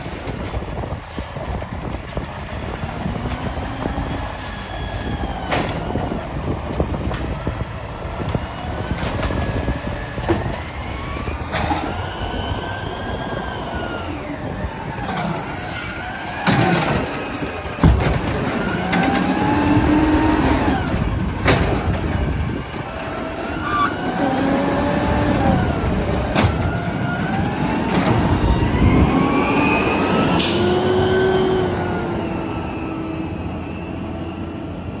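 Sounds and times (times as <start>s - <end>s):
hydraulics whining: 0.0s - 35.0s
garbage truck engine revving: 10.8s - 33.3s.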